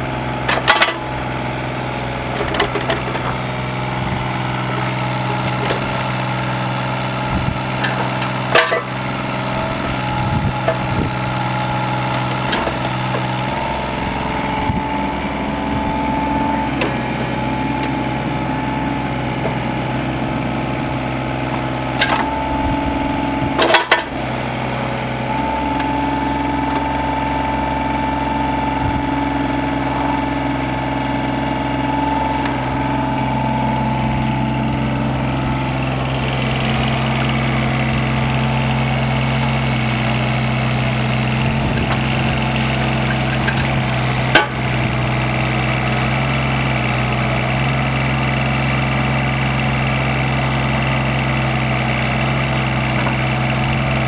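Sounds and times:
excavator diesel engine running: 0:00.0 - 0:54.0
high steady whine: 0:02.3 - 0:24.2, 0:25.2 - 0:39.6.

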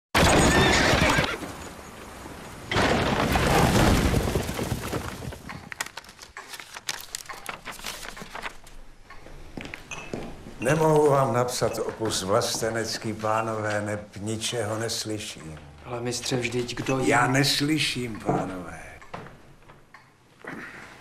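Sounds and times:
horse neighing: 0:00.4 - 0:01.4.

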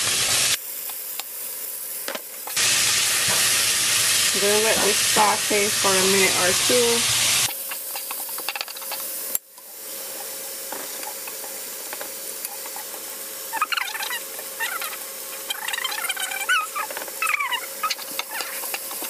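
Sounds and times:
vegetables sizzling in a pot: 0:00.0 - 0:19.0
high squeaky chirps: 0:13.5 - 0:18.6.

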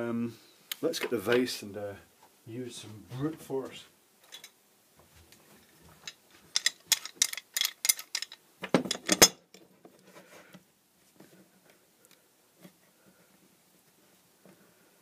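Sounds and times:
metal vise clicking and rattling: 0:06.0 - 0:09.7.

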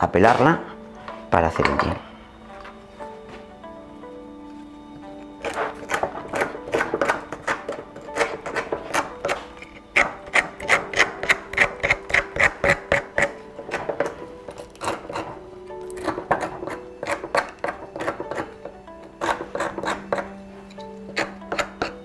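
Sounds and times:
soft background music: 0:00.0 - 0:22.0
tool scraping bark: 0:05.4 - 0:22.0.

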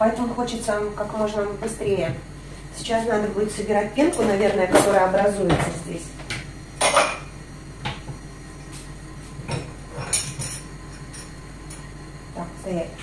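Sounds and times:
cookware and utensils clinking: 0:06.8 - 0:07.3, 0:09.5 - 0:11.3.

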